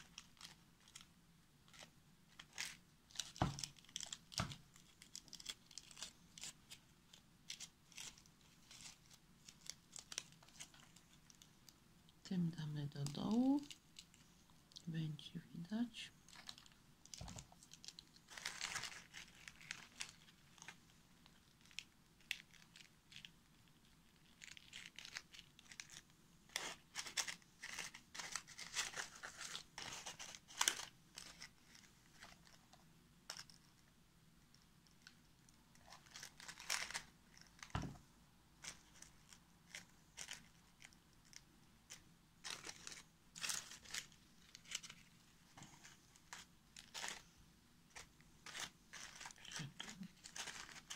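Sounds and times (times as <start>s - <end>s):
dry husks and leaves rustling: 48.0s - 50.9s.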